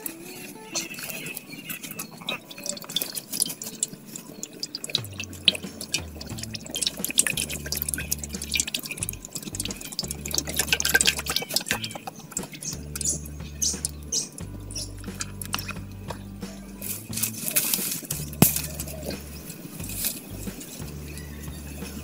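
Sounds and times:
oil glugging and splashing into pan: 0.8s - 16.2s.

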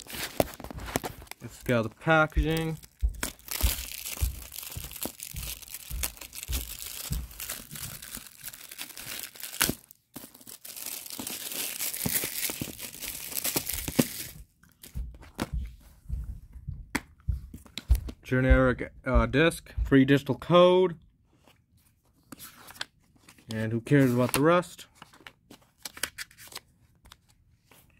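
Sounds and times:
plastic shrink wrap crinkling: 0.0s - 14.4s
handling noises: 0.0s - 15.7s.

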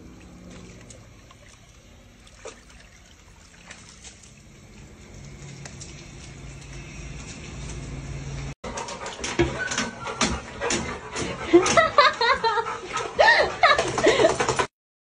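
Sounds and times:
water trickling into basin: 0.1s - 6.8s
short water splashes: 0.5s - 4.5s.

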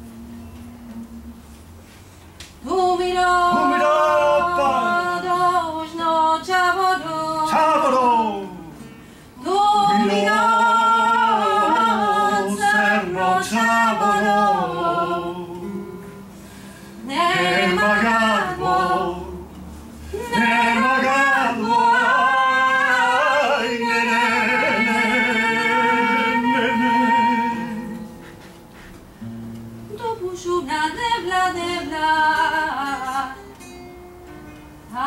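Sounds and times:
acoustic guitar: 0.0s - 35.0s
woman singing: 2.6s - 7.8s, 9.4s - 15.8s, 17.0s - 19.5s, 20.2s - 28.1s, 29.9s - 33.6s.

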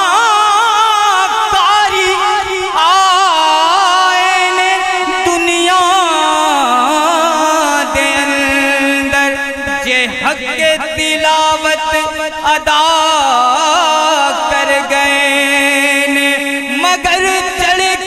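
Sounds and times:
man singing into microphone: 0.0s - 18.0s.

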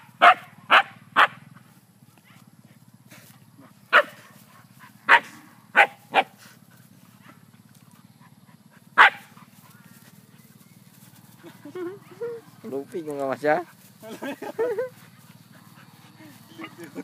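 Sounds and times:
dog barking: 0.2s - 1.4s, 3.9s - 4.3s, 5.0s - 6.4s, 9.0s - 9.4s.

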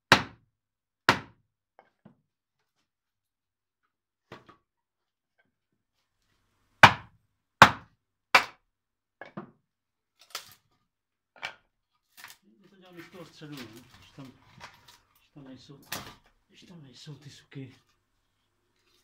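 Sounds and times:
sharp wooden knocks: 0.1s - 0.4s, 1.1s - 1.4s, 6.8s - 7.8s.

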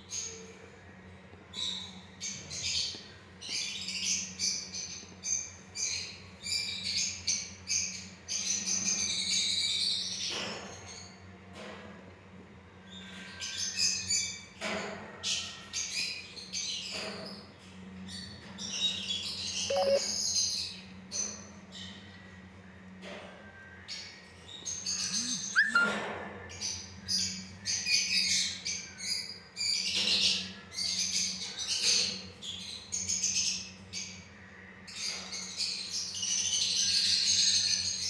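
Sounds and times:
birds chirping: 19.4s - 20.7s, 24.4s - 27.8s.

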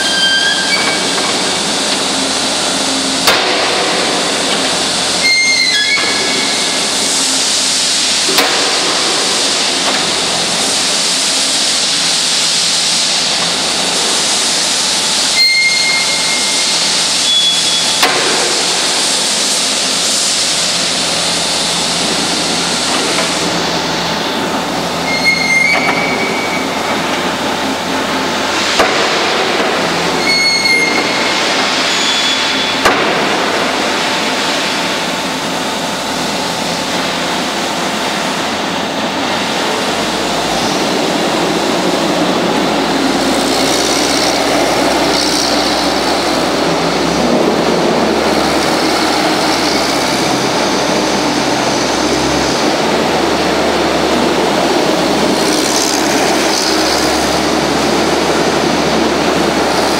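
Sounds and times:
brief high squeaks: 0.0s - 1.2s, 5.2s - 6.6s, 15.4s - 18.0s, 25.0s - 26.8s, 30.2s - 32.7s
diesel engine running: 0.0s - 59.9s
hydraulics working: 0.0s - 59.9s.

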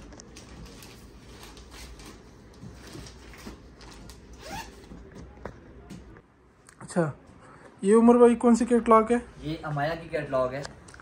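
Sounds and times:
cloth and packaging rustling: 0.0s - 6.2s.

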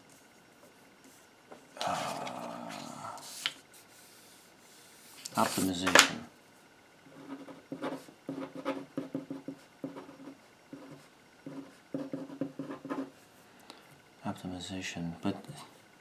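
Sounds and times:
pen scratching on paper: 7.1s - 13.1s.

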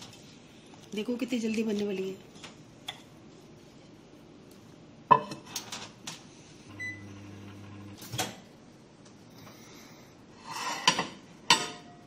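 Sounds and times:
microwave oven humming: 6.7s - 8.5s.

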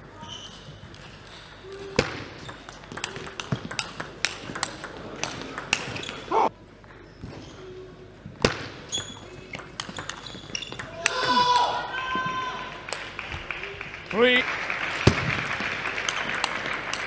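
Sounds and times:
table tennis ball clicking: 2.4s - 6.1s, 9.0s - 11.2s.

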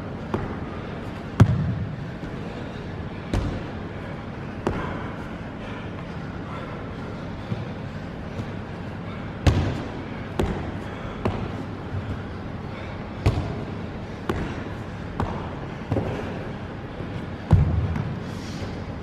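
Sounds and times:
feet thudding on padded box: 0.2s - 3.8s, 9.4s - 16.5s, 17.2s - 18.2s.

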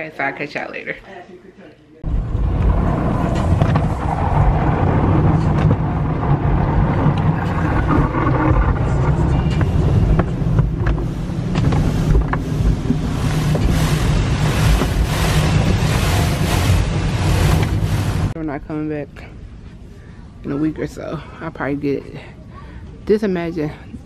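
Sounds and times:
heavy low rumble: 2.0s - 18.8s
brushes beating on car: 10.0s - 18.3s
water spray hissing: 11.1s - 18.4s.

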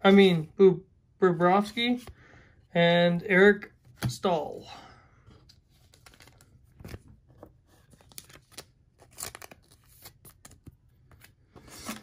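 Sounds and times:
plastic card sleeve crinkling: 5.5s - 12.0s.

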